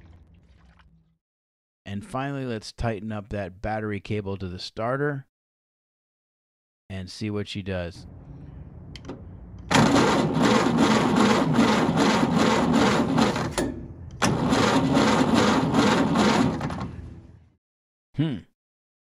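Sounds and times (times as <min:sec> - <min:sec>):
engine cranking by starter: 0:09.6 - 0:17.1.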